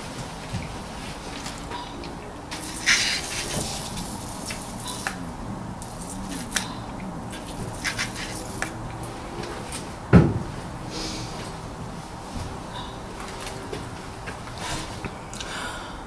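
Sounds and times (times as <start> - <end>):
dull thump: 10.1 - 10.5.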